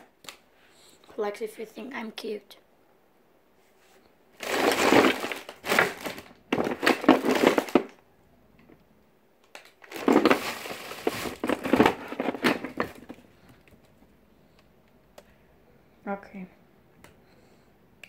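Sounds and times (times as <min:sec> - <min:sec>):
close rustling and crinkling: 0:09.7 - 0:14.1.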